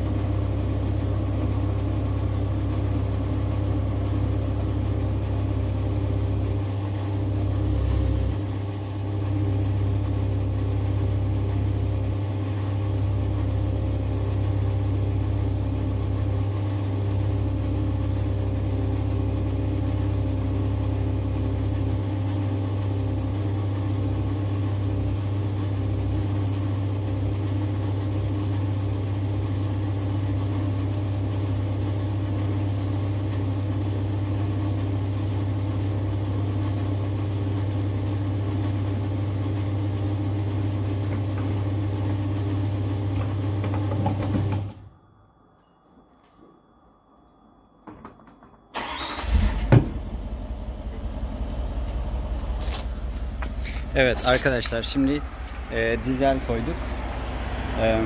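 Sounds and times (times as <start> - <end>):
fuel pump humming: 0.0 - 22.3, 48.8 - 58.0.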